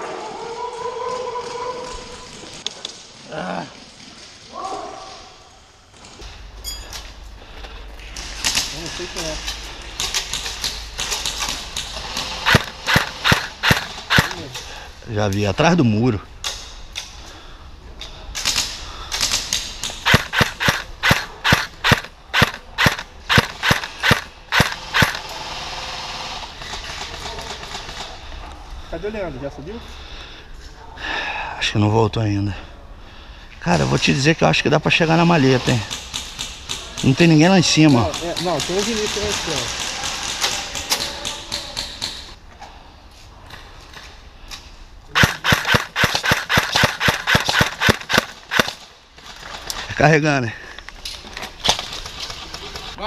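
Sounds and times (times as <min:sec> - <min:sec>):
airsoft rifle shots: 0:10.0 - 0:14.5, 0:18.4 - 0:25.3, 0:45.2 - 0:48.9.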